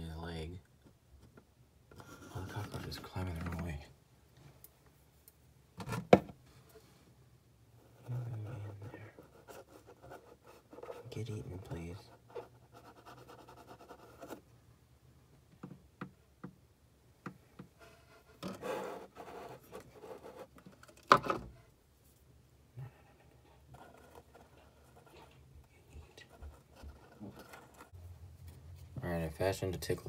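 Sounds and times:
handling rubbing and scraping: 17.6 - 22.3, 22.9 - 29.0.

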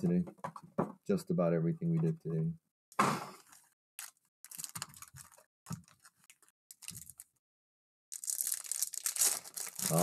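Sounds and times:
foil card packs rustling: 3.4 - 7.3, 8.2 - 10.0
wrapper seal pulled: 3.4 - 7.3, 8.1 - 10.0.

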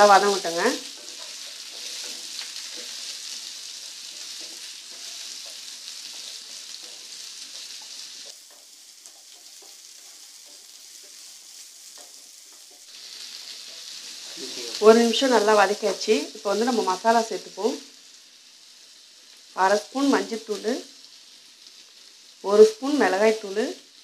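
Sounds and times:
vegetables sizzling in oil: 0.0 - 24.0
wooden spatula scraping pan: 0.8 - 14.4.

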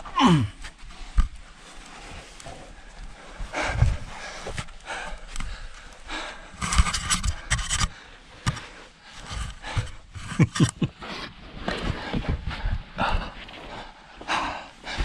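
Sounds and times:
man grunting: 0.1 - 0.6
man breathing hard: 2.4 - 10.1, 11.8 - 15.0.

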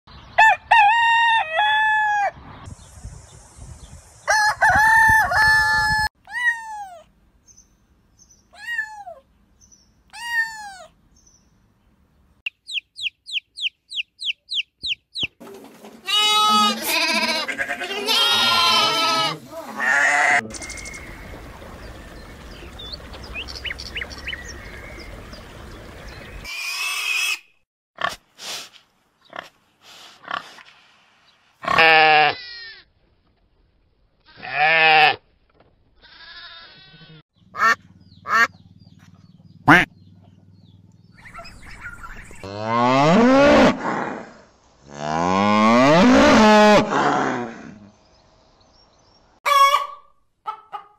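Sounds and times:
rooster crowing: 0.4 - 2.4, 4.3 - 6.1
falling bird calls: 12.5 - 27.6, 36.0 - 42.6
lambs bleating: 16.1 - 20.4, 31.6 - 32.8, 34.3 - 35.2, 36.0 - 37.2
high chirps: 20.4 - 24.9.

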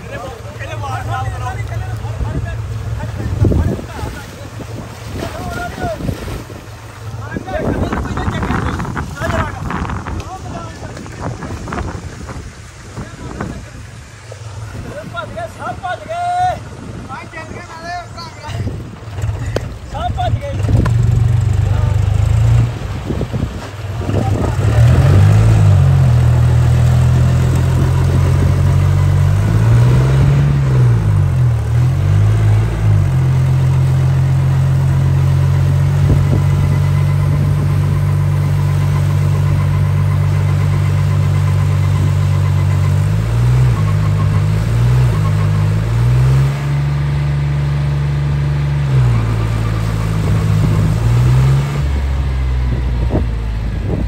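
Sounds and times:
wheels spinning in mud: 18.8 - 47.2
tractor diesel engine revving: 18.8 - 54.0.

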